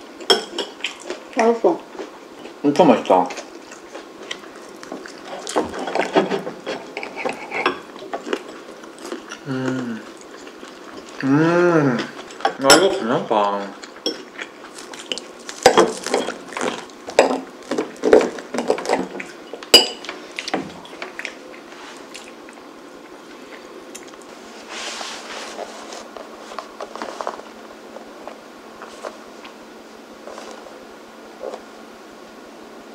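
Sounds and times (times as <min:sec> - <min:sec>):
cutlery scraping and clinking on plate: 0:05.3 - 0:08.6, 0:15.0 - 0:17.4
soft rustling handling noise: 0:23.3 - 0:29.6.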